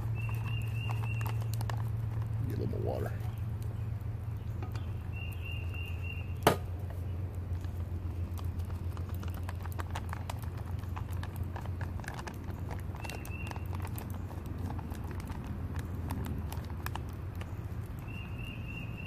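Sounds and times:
fork clicking in plastic pouch: 0:00.0 - 0:02.6, 0:07.6 - 0:18.9
steady low hum: 0:00.0 - 0:19.0.

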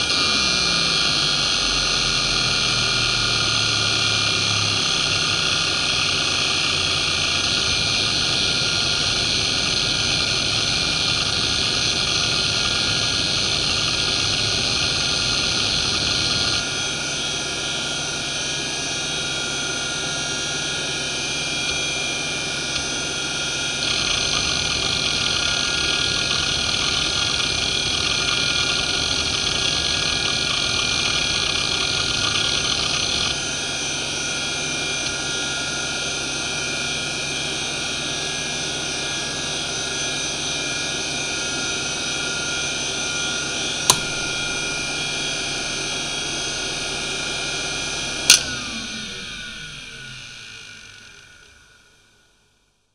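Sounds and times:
hard drive spindle whine: 0:00.0 - 0:52.0.

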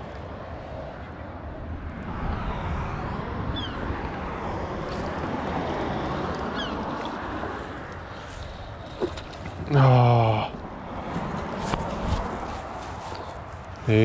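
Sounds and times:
tyres rushing on road: 0:03.9 - 0:12.9.

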